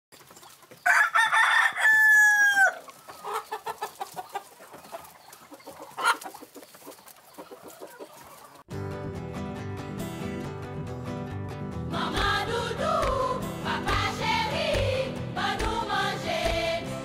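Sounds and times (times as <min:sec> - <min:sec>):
hens clucking: 0:00.2 - 0:08.7
rooster crowing: 0:00.8 - 0:02.9.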